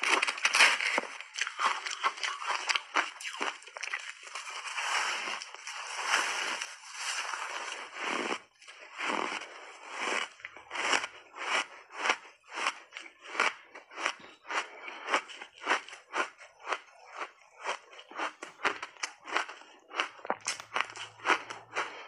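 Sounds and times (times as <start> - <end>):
shaved ice crunching: 0.0 - 11.1.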